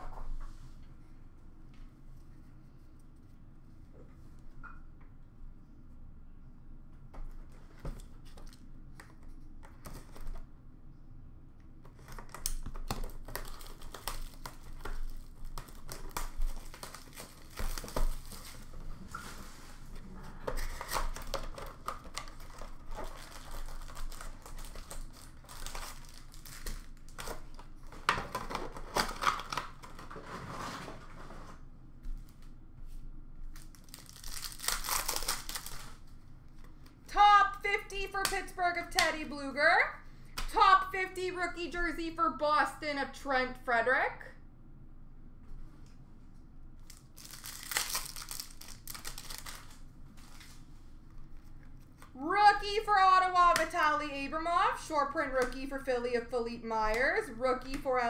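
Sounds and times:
foil wrappers crinkling and tearing: 12.0s - 19.8s, 20.4s - 30.5s, 33.5s - 36.2s, 46.8s - 50.7s.

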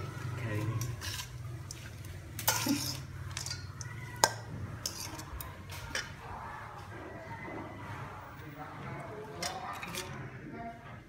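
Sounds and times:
utensils clinking against dishes: 0.5s - 6.2s, 9.4s - 10.2s.

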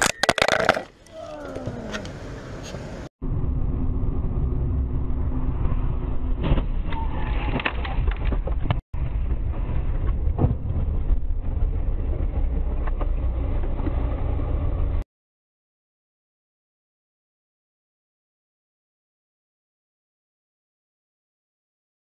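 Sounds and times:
road and engine rumble: 0.0s - 15.0s.

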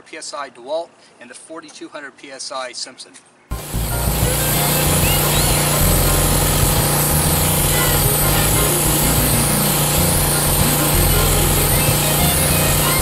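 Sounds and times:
pressure washer engine running: 3.5s - 13.0s
water jet spraying on tile: 3.5s - 13.0s.

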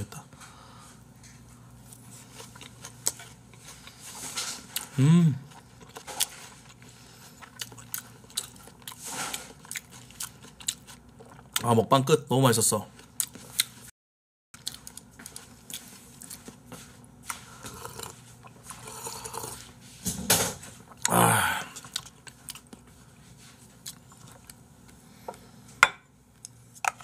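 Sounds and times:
person sipping and exhaling: 18.8s - 19.6s.

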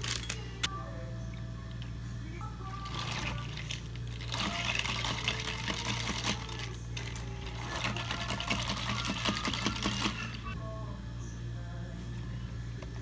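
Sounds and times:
steady low hum: 0.0s - 13.0s
ice cubes clinking in plastic cup: 2.8s - 7.1s.

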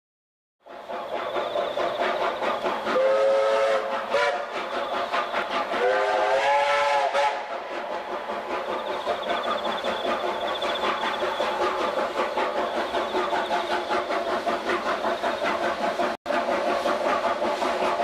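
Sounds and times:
steam locomotive exhaust beats: 0.6s - 18.0s
steam whistle blasts: 2.9s - 7.8s.

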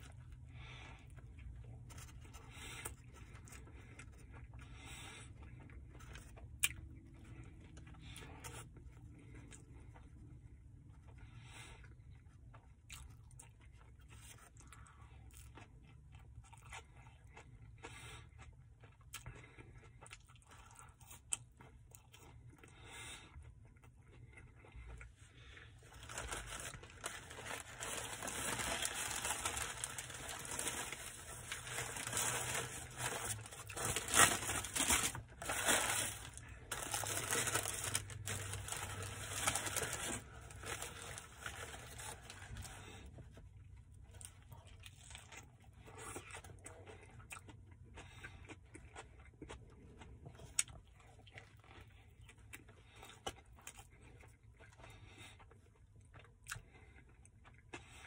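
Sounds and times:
chewing: 0.0s - 58.0s
paper wrapper crinkling and tearing: 25.8s - 42.9s.

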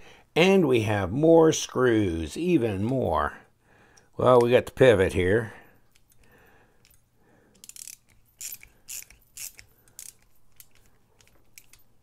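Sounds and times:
ratcheting screwdriver clicking: 6.8s - 12.0s.

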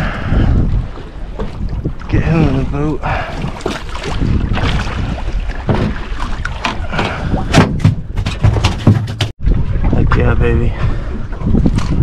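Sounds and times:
wind rumble on microphone: 0.0s - 12.0s
fish thumping on boat deck: 5.6s - 9.3s.

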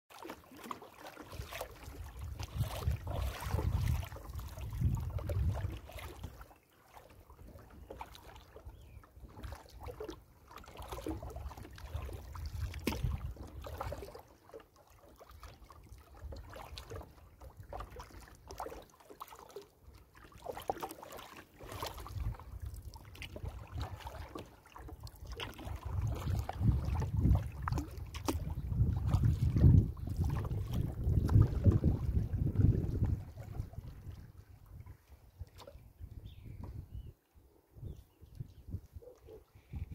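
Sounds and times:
paddle splashing water: 0.1s - 39.9s
wind rumble on microphone: 1.8s - 6.4s, 11.0s - 14.1s, 21.7s - 24.2s, 25.3s - 37.2s, 37.8s - 39.9s.

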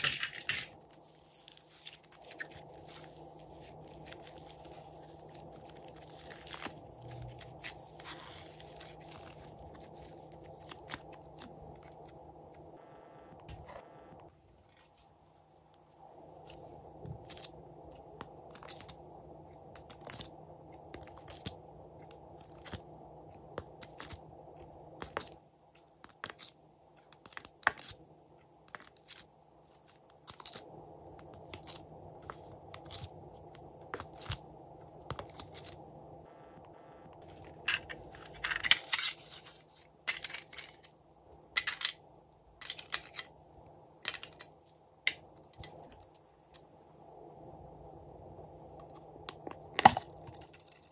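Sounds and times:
rustling scrape: 0.0s - 11.0s, 37.3s - 40.3s.

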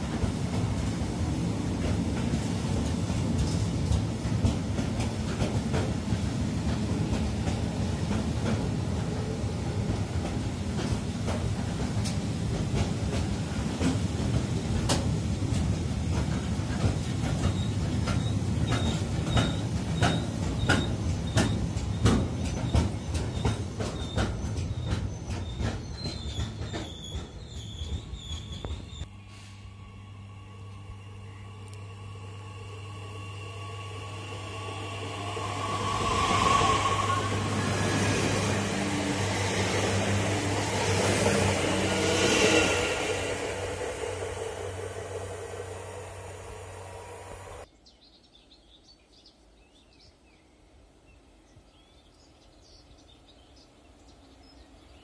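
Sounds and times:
freight train rumbling past: 0.0s - 47.7s
wheel clacks over rail joints: 10.2s - 28.8s.

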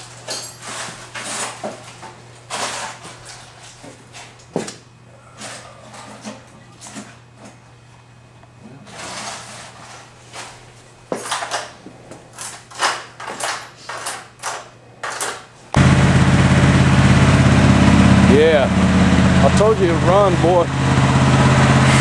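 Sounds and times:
truck engine running: 15.8s - 22.0s.

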